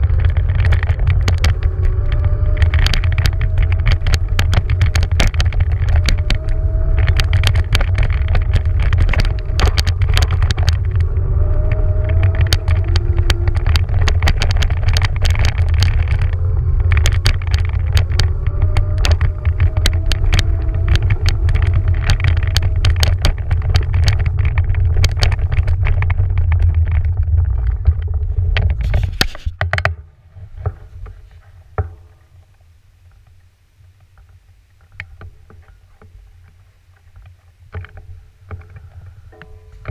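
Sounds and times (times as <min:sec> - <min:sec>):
electric scooter rumbling over sand: 0:00.0 - 0:39.9
faint wavering whine: 0:27.2 - 0:39.9.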